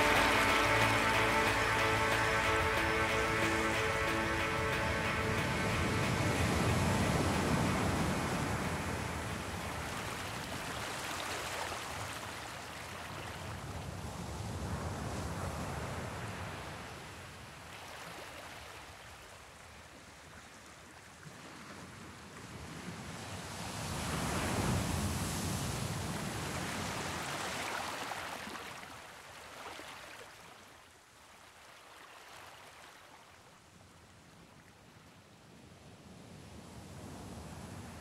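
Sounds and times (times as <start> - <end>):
sea waves rushing: 0.0 - 16.9.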